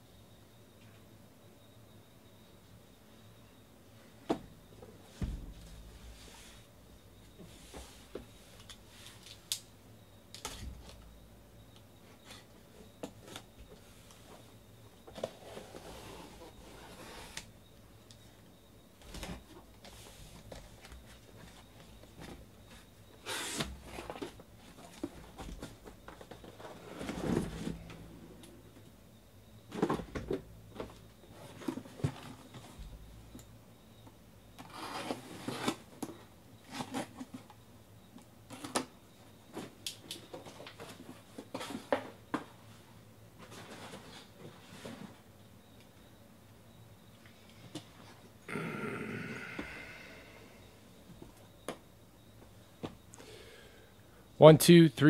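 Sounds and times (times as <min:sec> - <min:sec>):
cardboard boxes rustling and knocking: 0:04.2 - 0:06.6, 0:23.5 - 0:28.1, 0:29.6 - 0:33.1.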